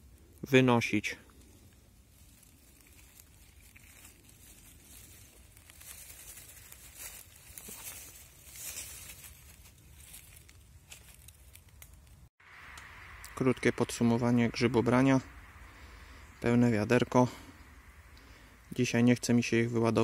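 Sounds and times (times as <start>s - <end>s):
rustling of forest litter: 0.0s - 13.5s.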